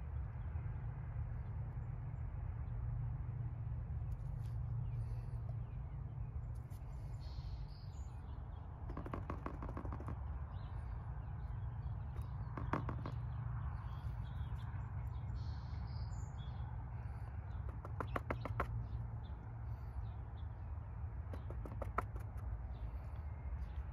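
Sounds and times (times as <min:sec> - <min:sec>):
faint bird chirps: 0:04.4 - 0:21.9
wooden stick tapping tubs: 0:12.2 - 0:13.3, 0:17.7 - 0:18.8.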